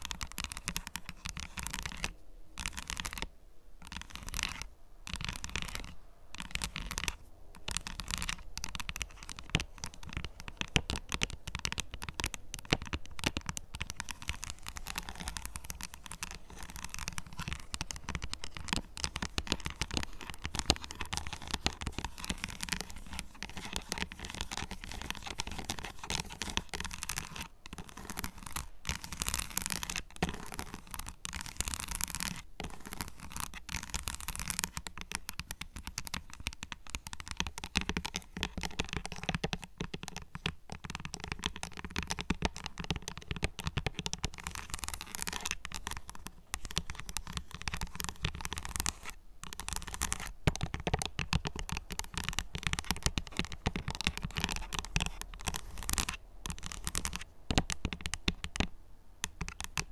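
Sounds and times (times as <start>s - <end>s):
fingernails scratching chocolate: 13.4s - 59.9s.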